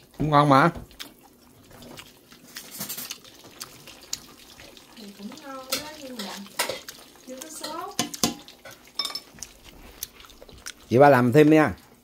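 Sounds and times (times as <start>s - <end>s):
utensils and dishes clinking: 2.5s - 3.2s, 5.6s - 9.5s.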